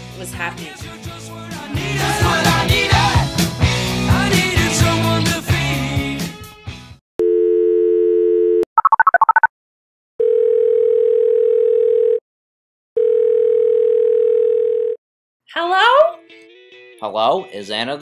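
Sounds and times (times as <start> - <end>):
background music: 0.0 - 7.0, 15.6 - 18.0
telephone dial tone: 7.2 - 9.3, 10.2 - 12.2, 13.0 - 15.0
phone ringing tones: 7.2 - 9.4, 10.2 - 12.2, 13.0 - 15.0
keypad dialing tones: 7.2 - 9.5.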